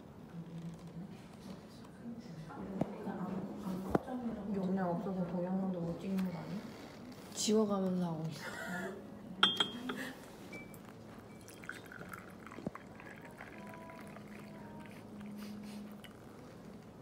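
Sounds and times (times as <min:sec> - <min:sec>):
glass clink: 0:09.4 - 0:12.8
tea pouring into a mug: 0:11.4 - 0:15.3, 0:15.9 - 0:16.3.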